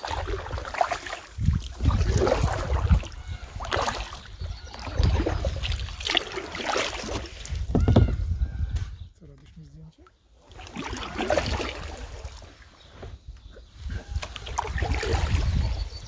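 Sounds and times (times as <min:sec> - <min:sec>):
paddle strokes in water: 0:00.0 - 0:07.8.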